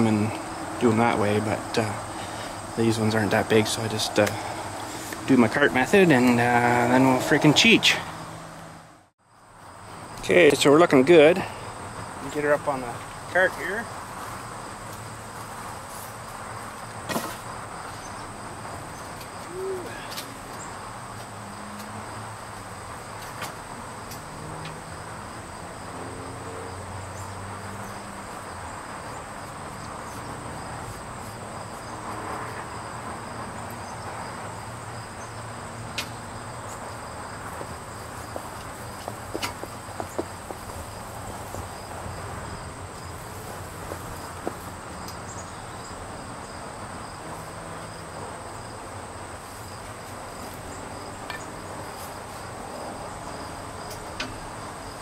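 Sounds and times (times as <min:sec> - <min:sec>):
insects trilling: 0:00.0 - 0:55.0
sharp clicks and knocks: 0:38.5 - 0:40.8.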